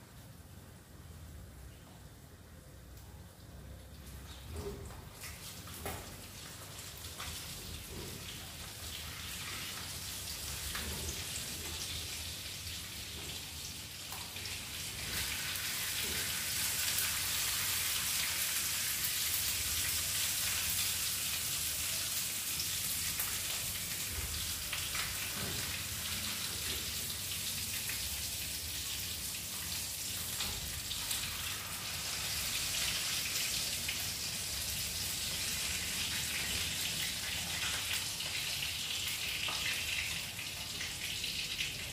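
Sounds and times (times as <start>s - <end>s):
fish sizzling in frying pan: 5.5s - 41.8s.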